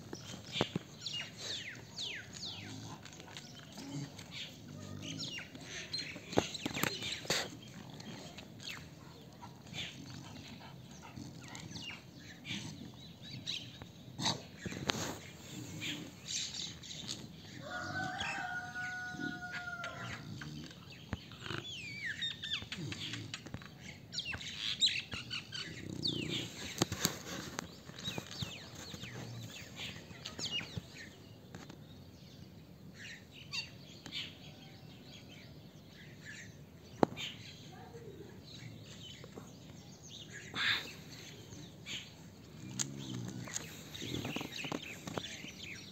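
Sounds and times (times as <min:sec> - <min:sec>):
birds chirping: 0:00.0 - 0:45.9
clicks and rustles: 0:26.4 - 0:29.6.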